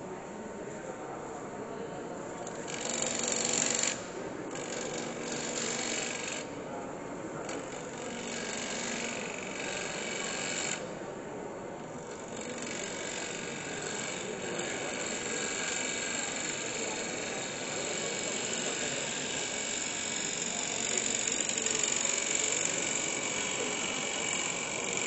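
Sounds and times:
wood lathe running: 7.9 - 10.8, 12.2 - 25.0
gouge scraping spinning wood: 12.4 - 25.0.

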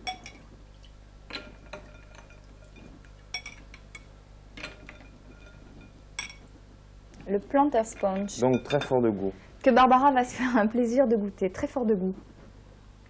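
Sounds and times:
metal ladle clinking on glass: 1.3 - 6.4, 8.0 - 9.0.

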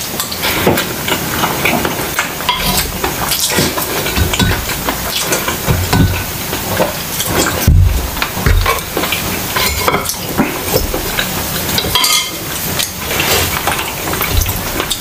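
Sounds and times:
person chewing: 0.1 - 15.0
dull thumps: 5.6 - 6.6, 7.6 - 9.0
spoon clinking in glass bowl: 11.9 - 12.4.

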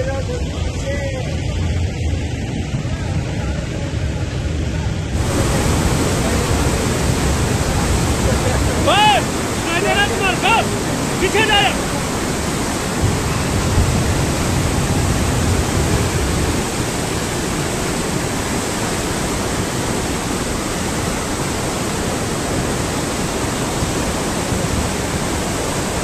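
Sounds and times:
heavy low rumble: 0.2 - 18.8
flooded river rushing: 5.1 - 26.0.

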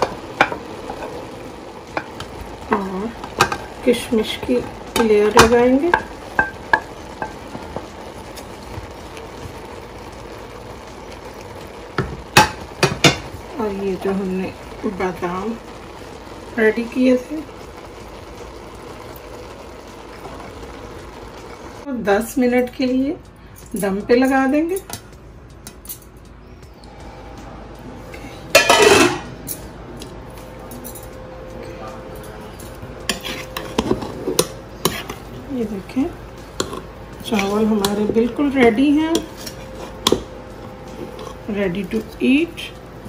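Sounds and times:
pot lid clanking on metal pot: 28.5 - 29.3.

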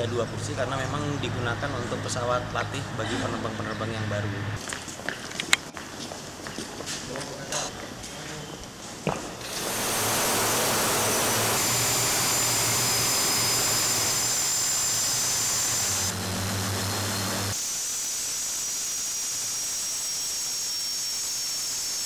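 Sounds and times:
jet engine running with whine: 9.4 - 17.6.

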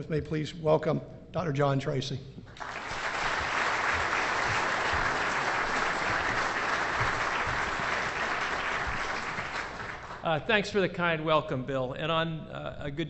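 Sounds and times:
audience applauding: 2.5 - 10.4.

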